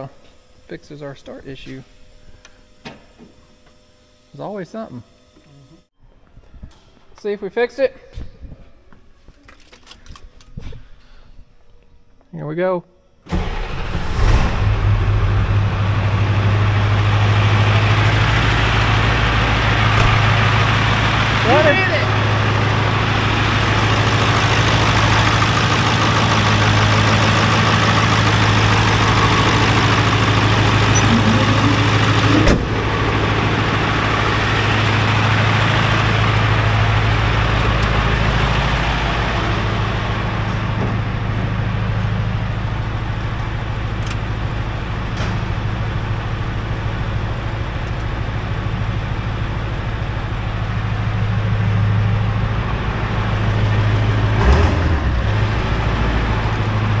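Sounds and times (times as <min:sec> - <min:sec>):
diesel engine idling: 0:13.4 - 0:57.0.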